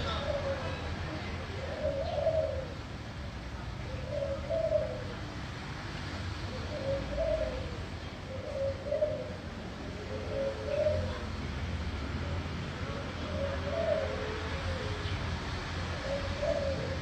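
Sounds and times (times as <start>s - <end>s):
dove cooing: 0.0s - 2.8s, 3.8s - 5.2s, 6.4s - 11.4s, 12.8s - 15.3s, 15.9s - 17.0s.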